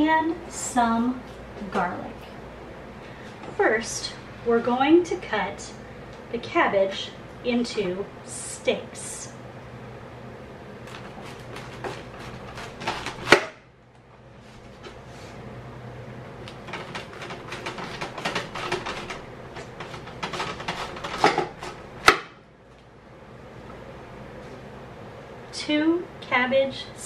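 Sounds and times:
knife crunching through cabbage: 10.8 - 13.5.

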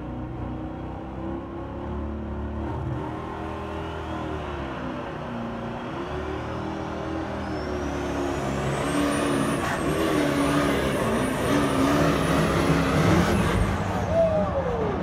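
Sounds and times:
diesel engine revving hard: 0.4 - 14.2
turbocharger whistle rising: 5.6 - 15.0.

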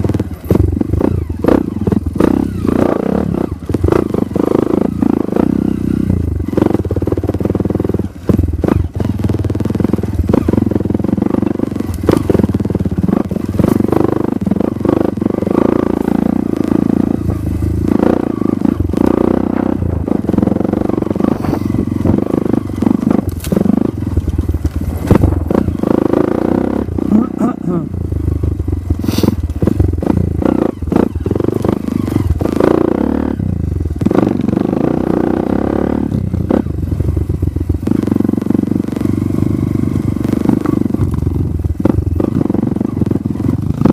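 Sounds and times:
dirt bike engine revving: 0.0 - 43.9
bike knocks and rattles: 20.0 - 25.8.

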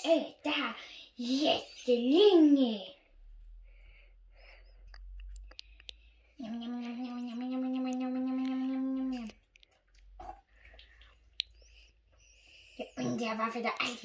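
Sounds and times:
child humming: 6.4 - 9.4.

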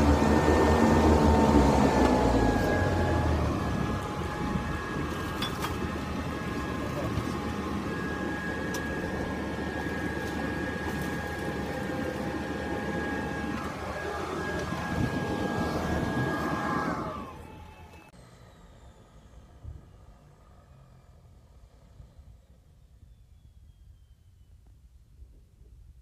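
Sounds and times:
thin steady whine: 0.0 - 19.6
plane engine droning: 0.0 - 24.6.

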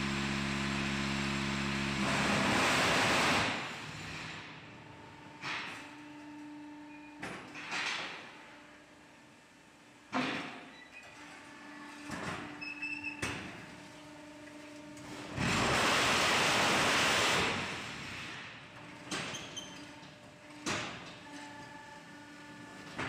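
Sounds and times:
loud machine shaking noise: 15.4 - 18.0.

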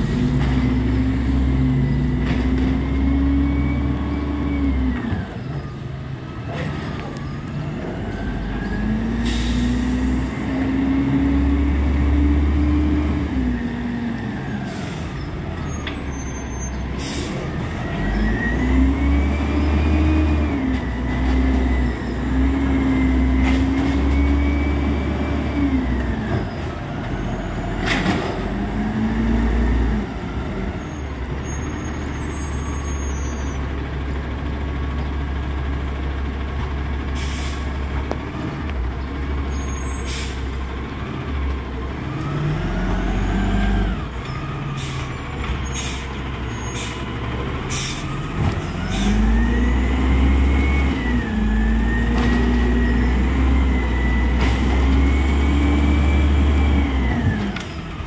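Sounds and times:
truck engine revving: 0.0 - 5.7, 6.6 - 58.0
air brakes hissing: 9.2 - 10.2, 14.5 - 17.5, 37.2 - 37.8, 39.5 - 40.6, 44.7 - 47.1, 47.7 - 48.2.

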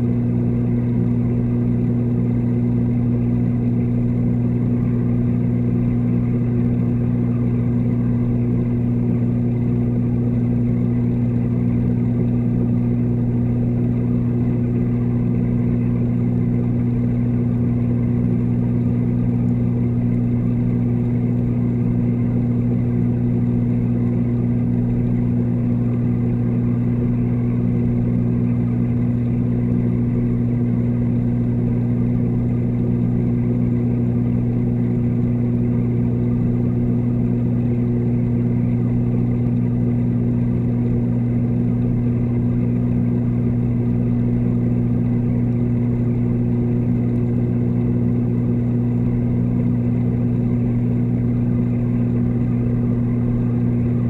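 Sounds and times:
aquarium pump humming underwater: 0.0 - 54.0.

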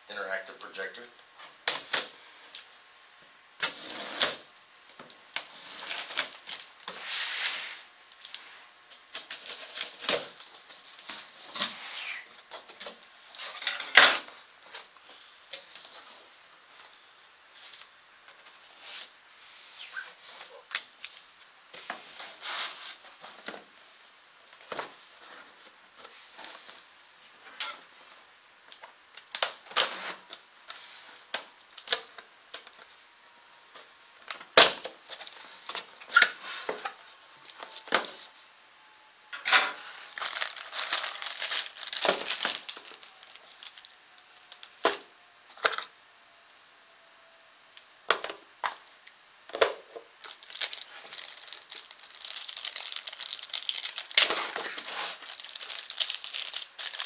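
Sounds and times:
cardboard and foam rustling: 21.7 - 23.7, 39.8 - 43.9, 50.2 - 57.0.

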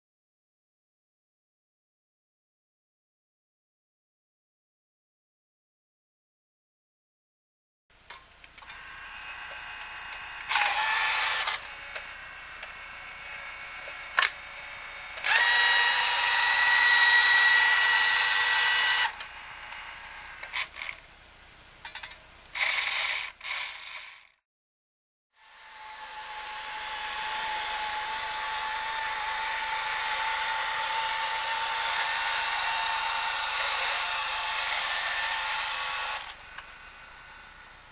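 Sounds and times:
toy truck motor whirring: 8.6 - 21.0, 21.9 - 24.4, 25.4 - 37.8.

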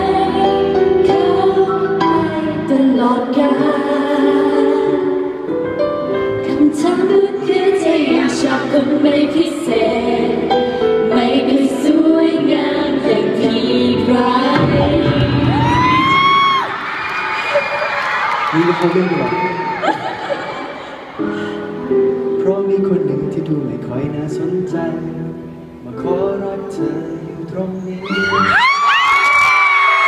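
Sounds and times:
women singing together: 0.0 - 5.4, 6.4 - 16.3.

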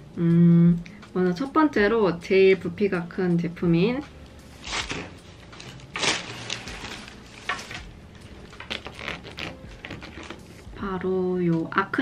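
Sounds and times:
packaging rustling and crinkling: 4.6 - 10.7.

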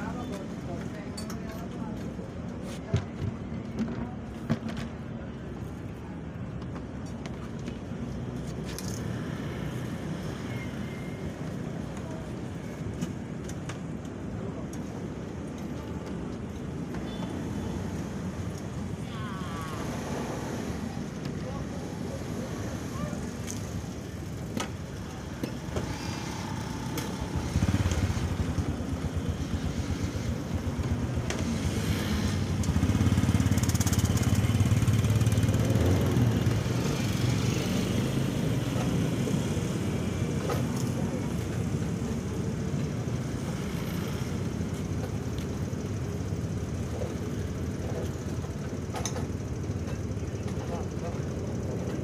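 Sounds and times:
motorcycles passing: 17.4 - 47.7.

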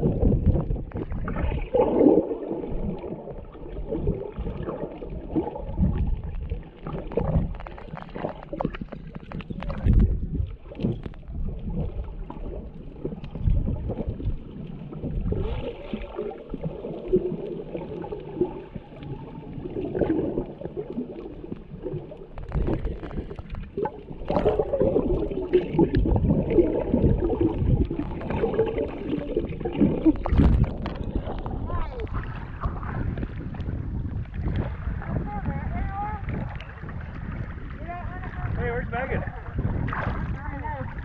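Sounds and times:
muffled underwater sloshing and bubbling: 0.0 - 41.0.

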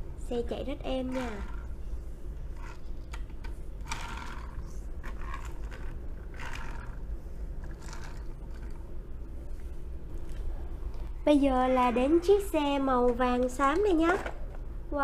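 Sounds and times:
toy wheels rolling and scraping: 3.8 - 7.0, 7.6 - 8.7.

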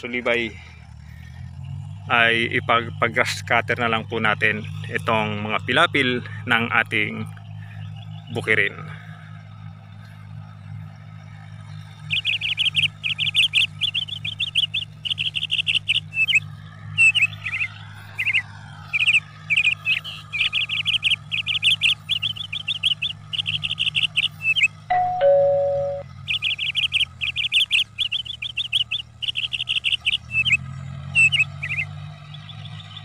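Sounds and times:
birds chirping: 0.0 - 33.0
tractor engine drone: 0.0 - 33.0
two-note falling chime: 24.9 - 26.0.

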